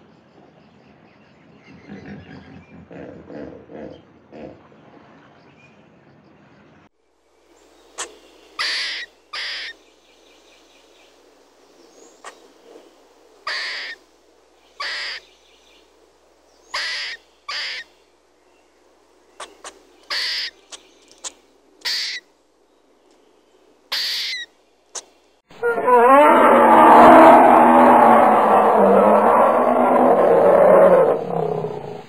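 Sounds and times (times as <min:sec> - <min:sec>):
harsh raspy animal calls: 0:13.4 - 0:14.0, 0:25.5 - 0:32.0.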